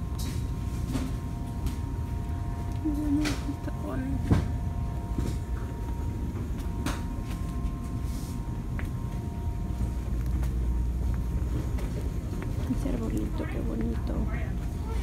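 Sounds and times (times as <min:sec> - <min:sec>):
low rumble and hum: 0:00.0 - 0:15.0.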